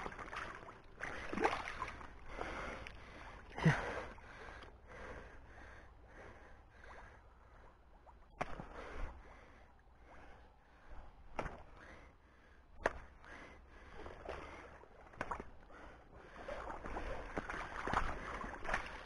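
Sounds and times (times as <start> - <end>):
water sloshing around wading legs: 0.0 - 5.0, 13.8 - 19.0.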